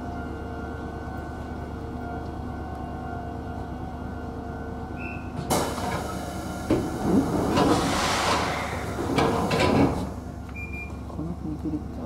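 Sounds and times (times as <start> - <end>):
compressed air hissing: 6.1 - 10.2.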